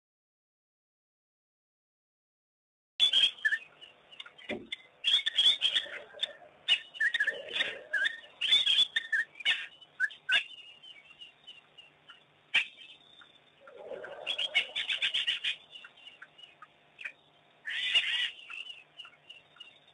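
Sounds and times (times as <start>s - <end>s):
wild dogs twittering: 4.6s - 10.7s, 12.5s - 13.0s, 13.6s - 19.3s.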